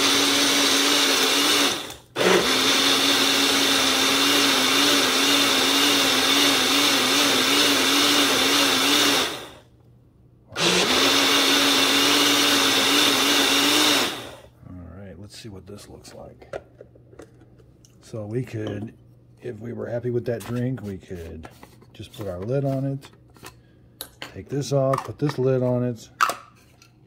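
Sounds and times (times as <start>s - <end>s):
blender motor running: 0.0s - 9.6s, 10.6s - 14.5s.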